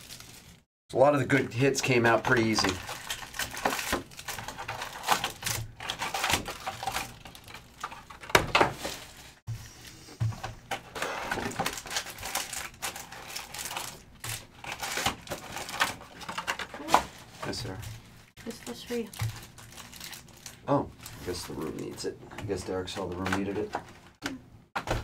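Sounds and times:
wrappers rustling and clicking: 2.3s - 8.2s, 11.4s - 22.0s.

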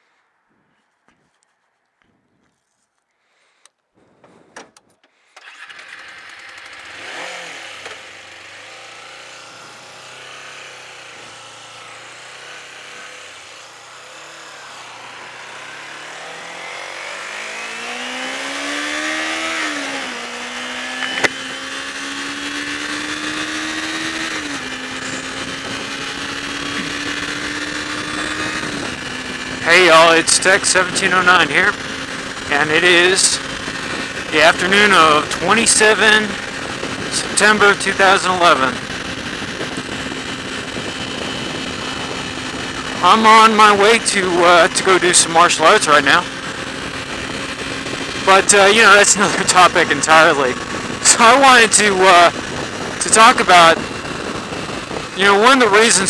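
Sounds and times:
wind noise: 4.0s - 4.7s, 21.0s - 44.4s, 46.3s - 51.1s, 51.8s - 56.0s
motorcycle engine revving: 5.3s - 56.0s
sharp click: 21.0s - 21.4s.

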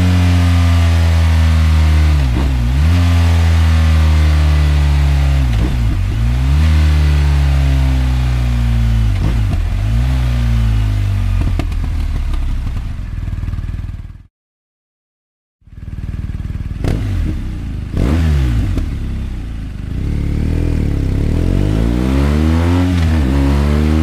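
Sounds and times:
motorcycle engine running: 0.0s - 14.3s, 15.6s - 24.0s
exhaust pops: 11.4s - 12.9s.

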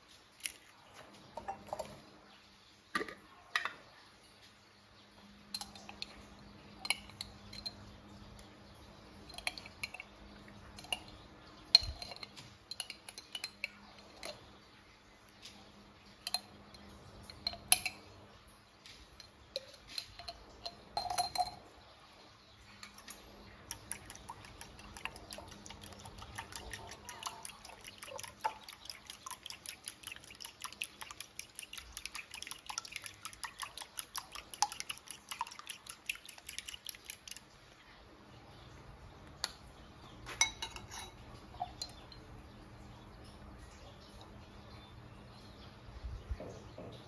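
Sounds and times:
spoon clinking on glass jar: 5.5s - 8.3s, 9.2s - 14.5s, 16.2s - 18.2s, 19.0s - 21.8s, 40.3s - 42.5s
liquid sloshing: 22.7s - 38.0s
fork stirring in ceramic bowl: 22.8s - 37.6s, 40.3s - 42.3s.

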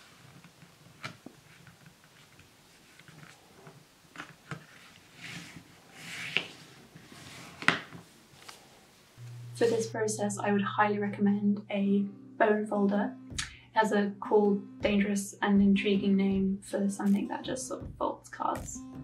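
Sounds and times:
bone folder brushing along fold: 4.2s - 8.8s.

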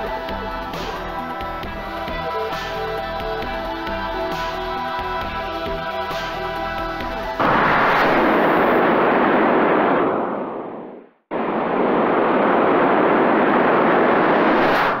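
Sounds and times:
loud rushing whoosh: 7.4s - 15.0s.

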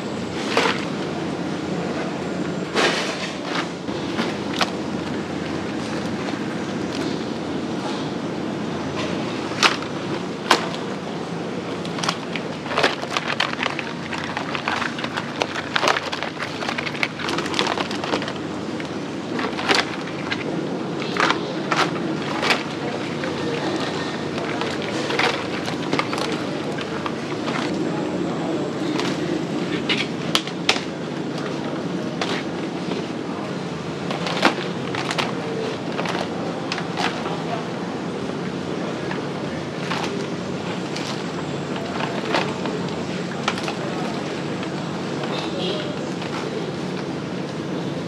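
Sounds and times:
steady background hum: 0.0s - 48.0s
plastic baskets clacking: 0.1s - 48.0s
crab shells clattering on plastic: 11.8s - 27.7s, 34.0s - 37.4s.

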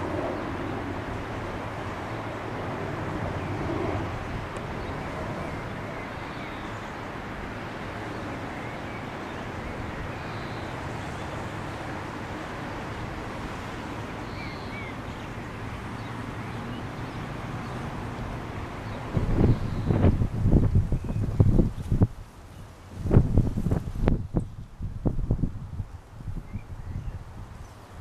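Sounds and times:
faint bird chirps: 19.4s - 20.0s.

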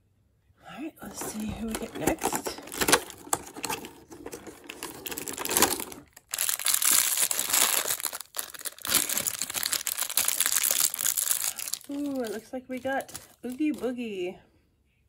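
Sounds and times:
foil bag crinkling: 1.1s - 13.9s
foil bag tearing: 1.2s - 12.4s.

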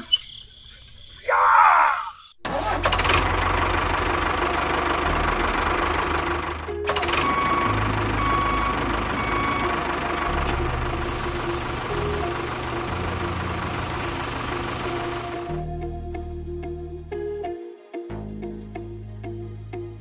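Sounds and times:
tractor engine running: 2.4s - 15.7s
sand pouring from trailer: 11.0s - 15.7s.

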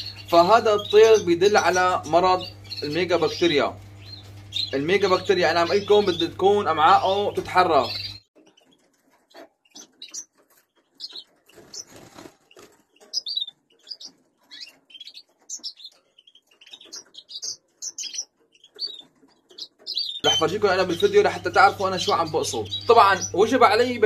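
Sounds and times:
finches chirping: 0.0s - 24.0s
rustling: 8.4s - 20.3s.

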